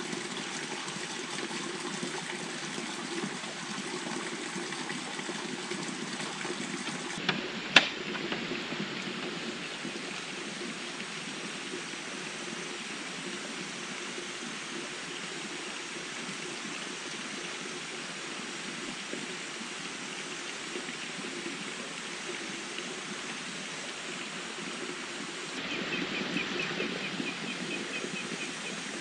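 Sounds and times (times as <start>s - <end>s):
flowing water: 0.0s - 29.0s.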